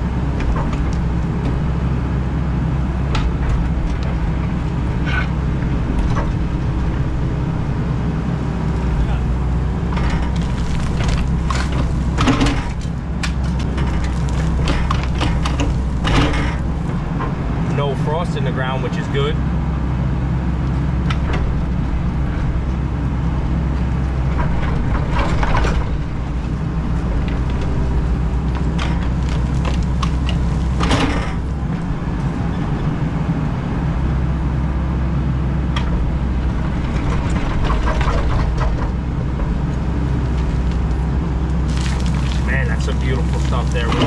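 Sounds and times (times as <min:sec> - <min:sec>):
diesel engine running: 0:00.0 - 0:44.0
bucket scraping and clanking gravel: 0:09.9 - 0:16.8, 0:41.6 - 0:44.0.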